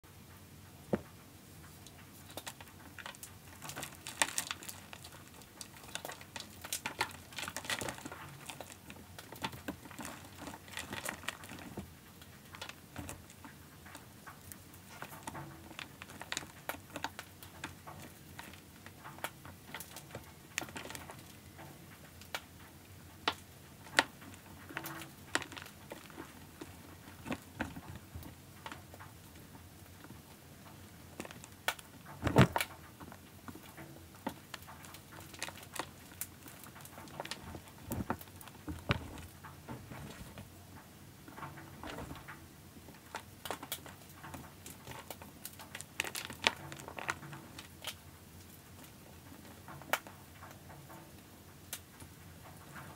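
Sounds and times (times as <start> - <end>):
chalk crunching and crackling: 1.6 - 21.4.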